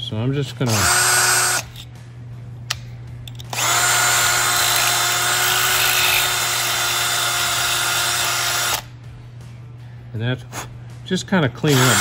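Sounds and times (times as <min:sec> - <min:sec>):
cordless drill running: 0:00.7 - 0:01.7, 0:03.5 - 0:08.8, 0:11.7 - 0:12.0.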